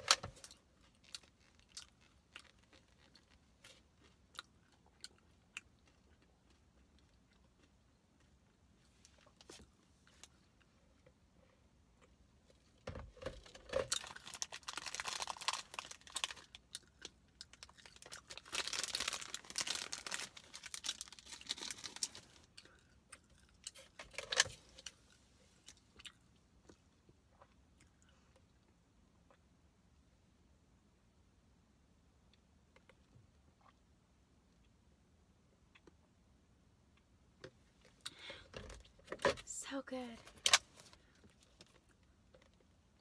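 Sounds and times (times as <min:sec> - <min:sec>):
plastic packet crinkling: 0:13.4 - 0:16.7, 0:17.5 - 0:22.5.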